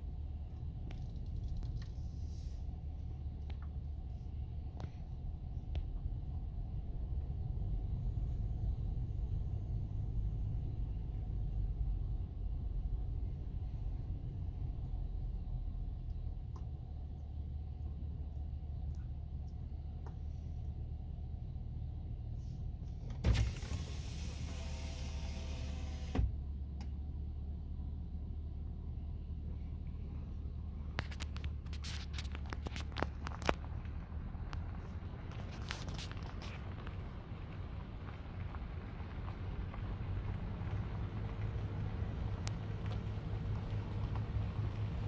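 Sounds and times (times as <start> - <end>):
engine idling: 0.0 - 45.0
electric window motor: 23.2 - 26.3
window motor clunk: 23.2 - 26.3.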